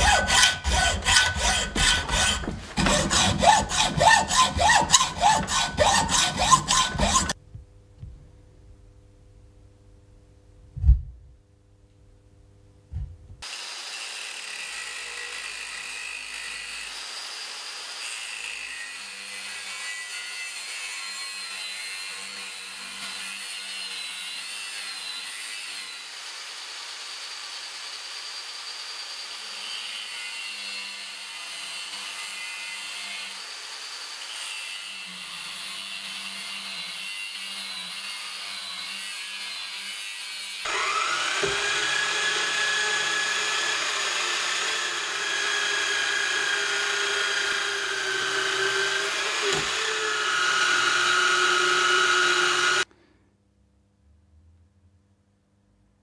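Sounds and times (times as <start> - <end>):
band saw cutting steel: 0.0 - 7.4, 13.4 - 52.9
power tool whine: 13.4 - 18.6, 40.6 - 52.9.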